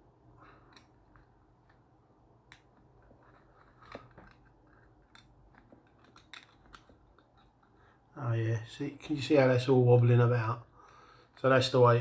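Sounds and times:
small clicks and light scrapes: 2.5s - 8.0s.

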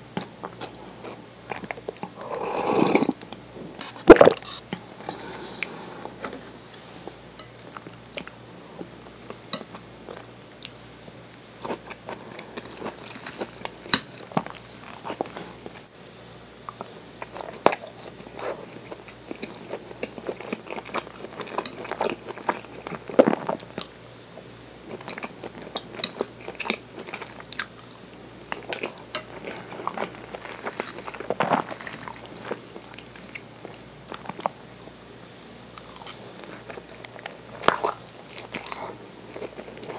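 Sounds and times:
wet mouth sounds: 2.2s - 3.2s, 3.8s - 4.6s.

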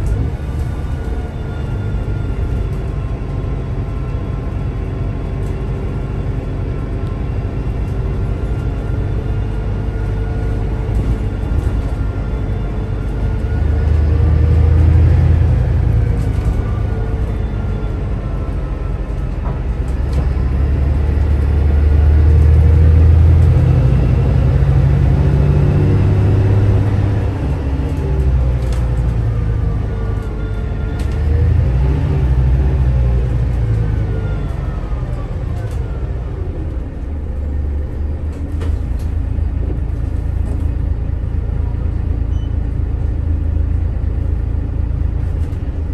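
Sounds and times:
bus diesel engine under load: 0.0s - 45.9s.

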